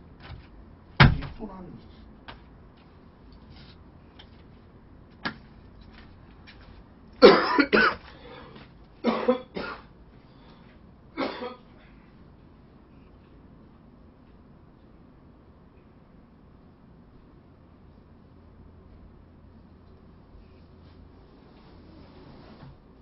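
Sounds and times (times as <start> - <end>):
person coughing: 7.2 - 8.1, 9.0 - 9.9, 11.2 - 11.7.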